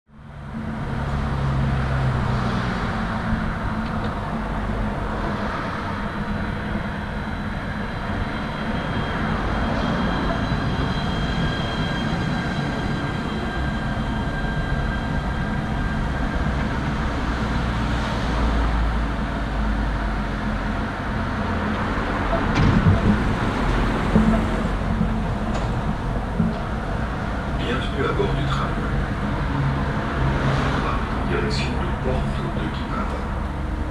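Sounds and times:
tram humming and whining: 0.1 - 33.9
knocks: 22.5 - 23.4.

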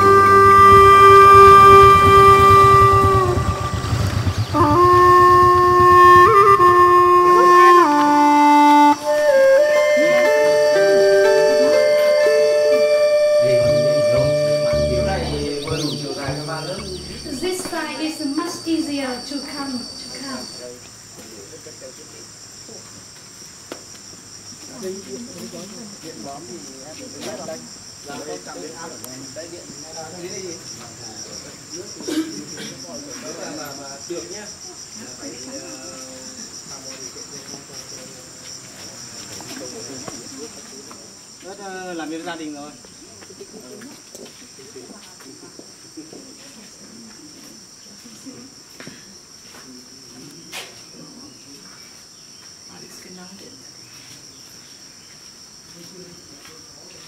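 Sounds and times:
shrill insect chorus: 0.0 - 57.0
faint voices murmuring: 7.2 - 22.9
faint talking: 13.4 - 18.7.

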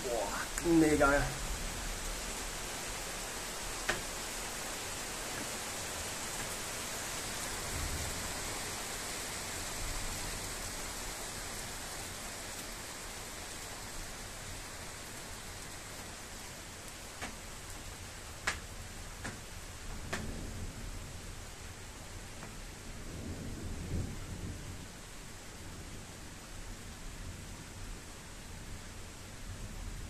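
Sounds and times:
heavy rain hissing: 0.0 - 19.9.

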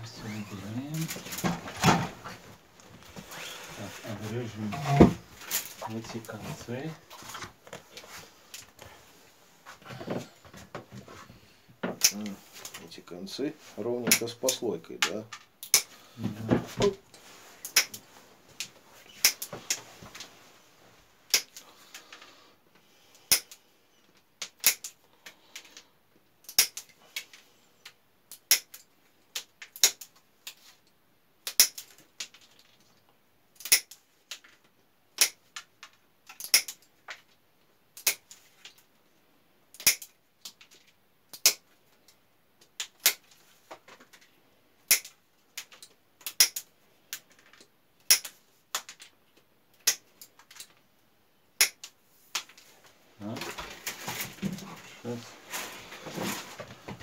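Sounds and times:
pruning shears snipping rods: 17.6 - 18.0, 36.4 - 36.8.

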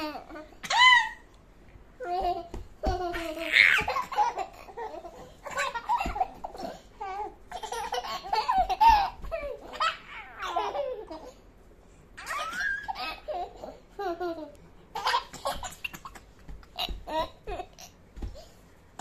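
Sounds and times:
baby and toddler giggling: 2.0 - 11.4, 12.2 - 18.4.

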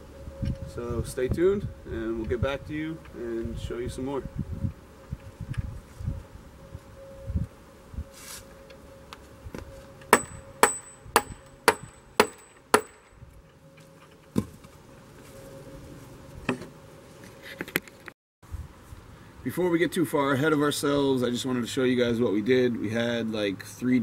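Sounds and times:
metal tool striking bolt: 10.2 - 13.1.

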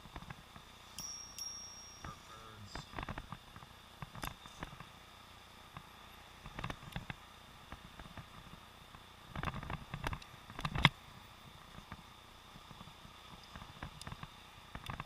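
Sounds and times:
faint steady high tone: 0.8 - 3.0.

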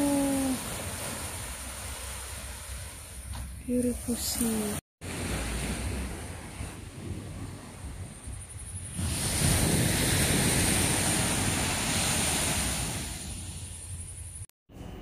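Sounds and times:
waves washing on sandy beach: 0.0 - 3.2, 3.9 - 8.1, 8.9 - 14.0
wind on microphone: 5.0 - 14.4.

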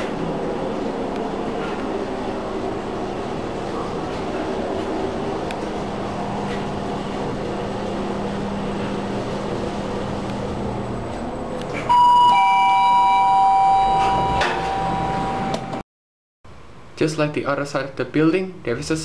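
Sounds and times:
lift car humming: 0.0 - 15.8
two-note electronic chime: 11.9 - 15.8.

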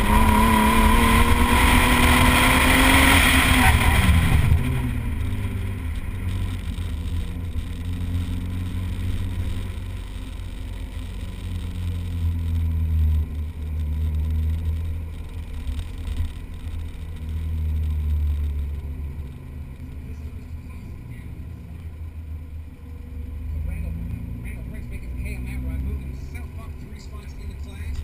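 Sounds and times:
car engine revving in cabin: 0.0 - 28.0.

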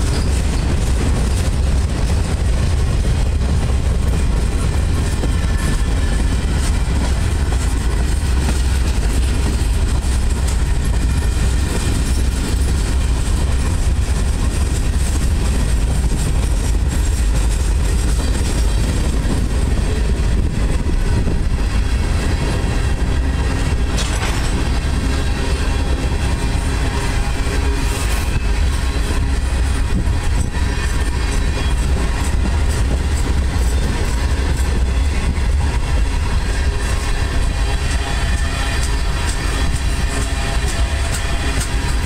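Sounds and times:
freight train wheels rumbling on rail: 0.0 - 42.0
wheel clicks on rail joints: 23.7 - 24.9.

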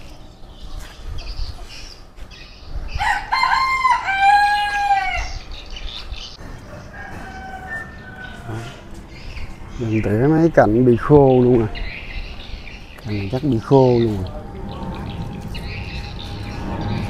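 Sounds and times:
rooster crowing: 3.0 - 5.4, 6.5 - 9.0.

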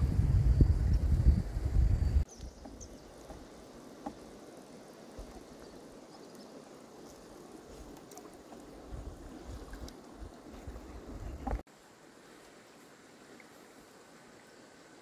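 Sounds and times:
insects: 0.0 - 15.0
stream water running: 0.0 - 15.0.

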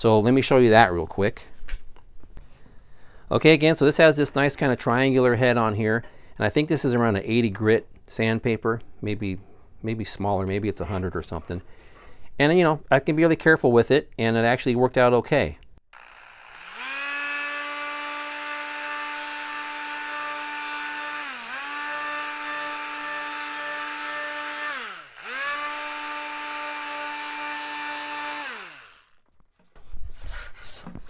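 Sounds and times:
oscillating multi-tool sanding wood: 16.0 - 29.1.

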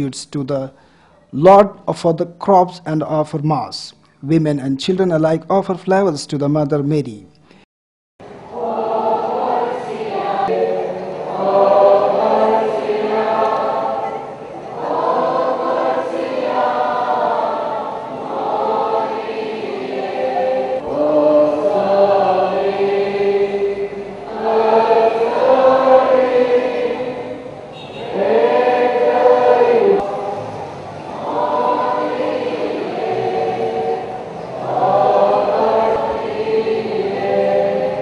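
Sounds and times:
choir singing a hymn: 8.2 - 38.0.

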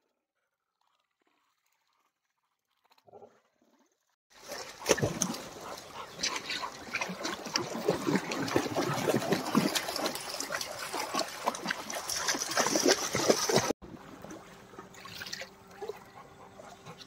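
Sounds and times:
dog splashing through stream: 4.4 - 15.5.

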